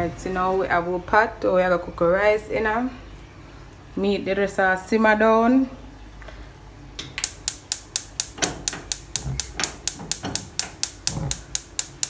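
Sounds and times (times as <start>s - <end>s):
stove spark igniter clicking: 7.0s - 12.0s.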